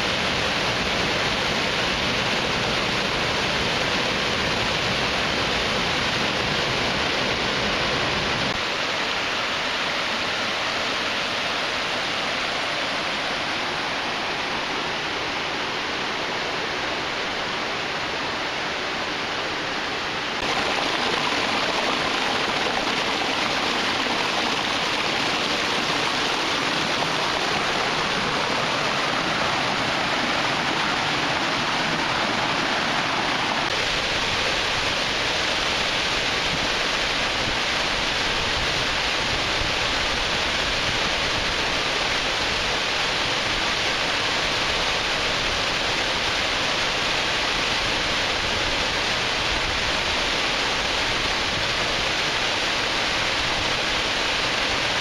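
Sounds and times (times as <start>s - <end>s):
waterfall falling into pool: 0.0s - 55.0s
water pouring over rock ledge: 20.4s - 37.4s.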